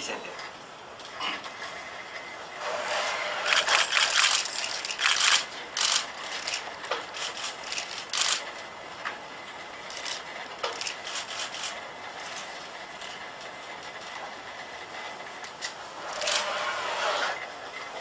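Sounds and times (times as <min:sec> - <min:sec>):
robot joint motors whirring: 0:02.6 - 0:08.5, 0:09.8 - 0:14.0, 0:15.3 - 0:17.5.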